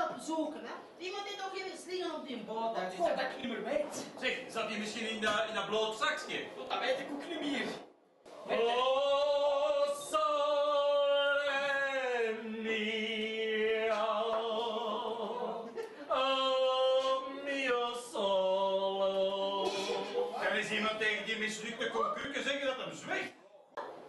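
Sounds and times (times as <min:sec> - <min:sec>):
man singing unaccompanied: 0:08.4 - 0:20.4.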